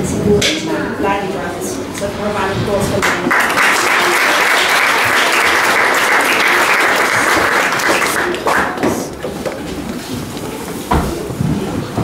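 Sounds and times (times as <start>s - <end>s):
audience applauding: 3.0s - 9.2s.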